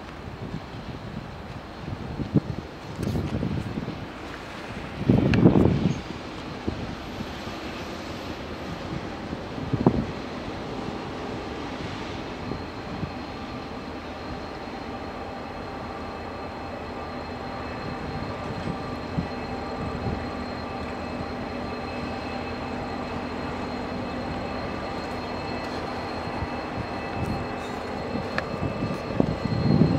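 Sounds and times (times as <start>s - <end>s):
diesel locomotive engine drone: 0.0s - 29.9s.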